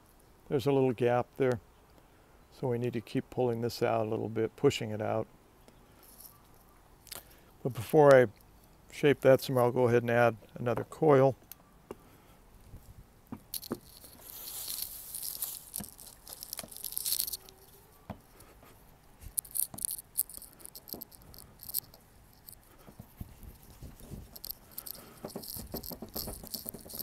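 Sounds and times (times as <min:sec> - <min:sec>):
clay rolled under palms: 0:12.6 - 0:27.0
soft rustling: 0:12.6 - 0:27.0
quick patter of strokes: 0:13.5 - 0:27.0.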